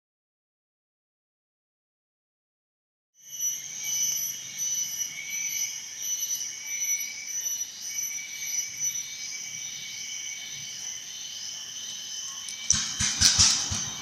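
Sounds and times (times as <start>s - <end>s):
shrill insect chorus: 3.2s - 14.0s.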